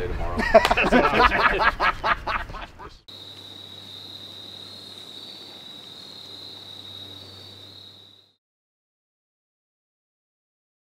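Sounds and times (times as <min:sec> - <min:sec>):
high-pitched insect trill: 0:03.1 - 0:08.4.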